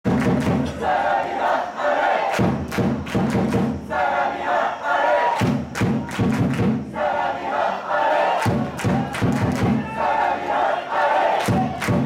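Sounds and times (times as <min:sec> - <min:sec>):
drum beats: 0:00.0 - 0:01.0, 0:02.3 - 0:04.0, 0:05.4 - 0:07.2, 0:08.4 - 0:10.2, 0:11.4 - 0:12.0
football supporters chanting: 0:00.1 - 0:12.0.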